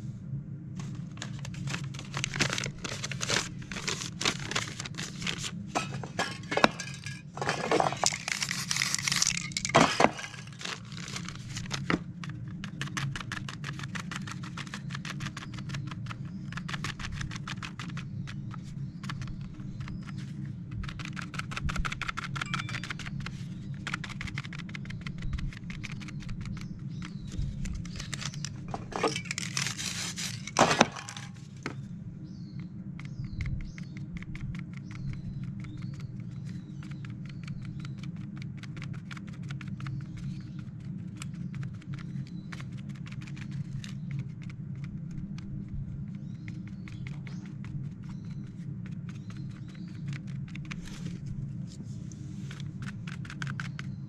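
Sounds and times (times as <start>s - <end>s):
steady low hum: 0.0s - 54.0s
paper rustling: 0.8s - 20.4s, 27.3s - 31.7s, 47.1s - 53.7s
paper crinkling and tapping: 0.8s - 31.8s, 33.8s - 51.8s.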